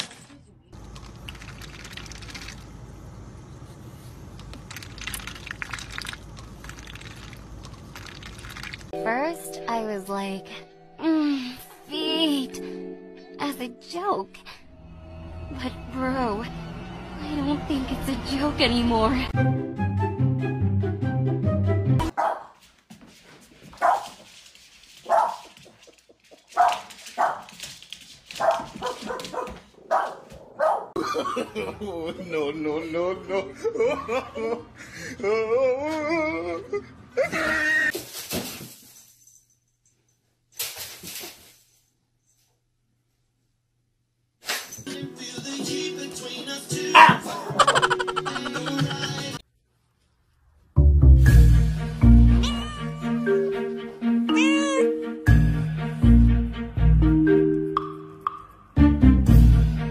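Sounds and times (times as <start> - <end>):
duck dabbling in water: 1.1 - 2.6, 4.7 - 8.9
dog barking: 22.1 - 22.6, 23.8 - 24.2, 25.1 - 25.5, 26.6 - 27.5, 28.4 - 31.0, 46.9 - 47.5.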